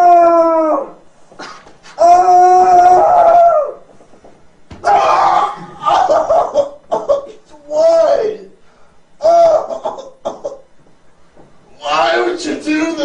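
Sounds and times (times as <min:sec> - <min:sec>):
long steady-pitched howls: 0:00.0 - 0:01.2, 0:01.8 - 0:10.4.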